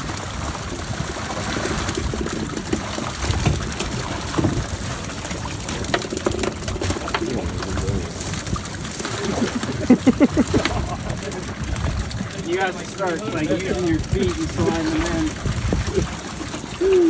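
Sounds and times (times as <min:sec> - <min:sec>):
fish flapping on deck: 0:00.0 - 0:17.0
water streaming and dripping: 0:00.0 - 0:17.0.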